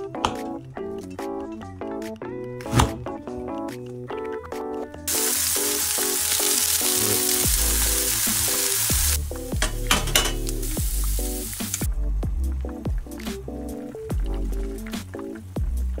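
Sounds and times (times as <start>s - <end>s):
light background music: 0.0s - 16.0s
mushrooms frying with spitting crackles: 5.0s - 16.0s
food sizzling in a hot pan: 5.1s - 11.9s.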